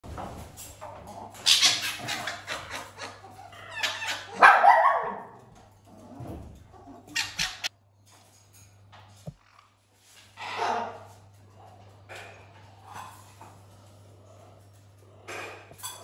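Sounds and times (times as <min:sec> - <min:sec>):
parrot screeches: 0:01.4 - 0:02.8, 0:03.5 - 0:04.4, 0:07.1 - 0:07.7.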